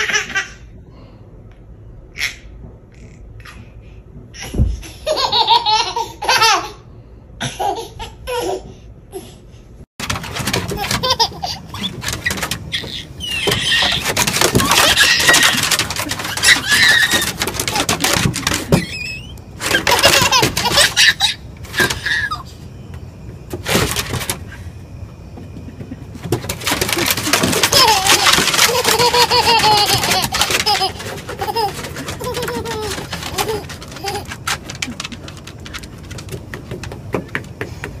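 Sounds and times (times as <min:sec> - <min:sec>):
toddler squealing and giggling: 0:16.3 - 0:17.3.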